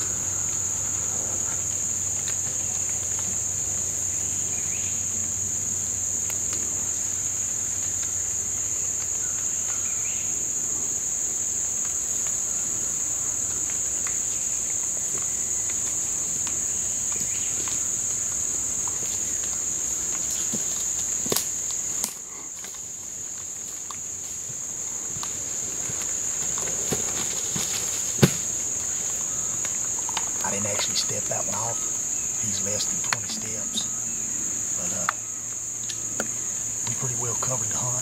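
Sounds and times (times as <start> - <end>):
high-pitched insect chorus: 0.0 - 38.0
footsteps in dry leaves: 23.4 - 29.3.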